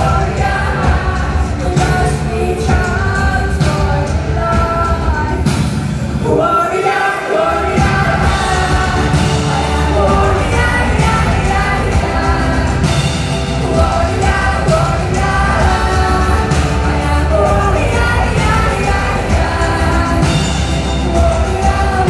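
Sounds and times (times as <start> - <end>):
live pop band: 0.0 - 22.0
woman singing: 0.0 - 22.0.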